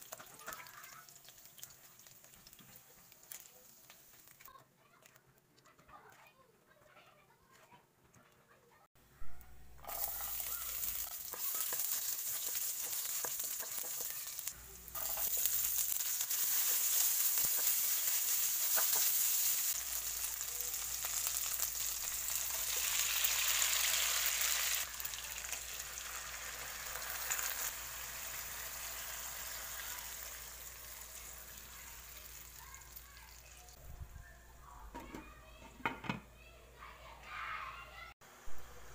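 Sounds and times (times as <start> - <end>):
food sizzling in hot oil: 0.0 - 4.4, 9.8 - 33.8.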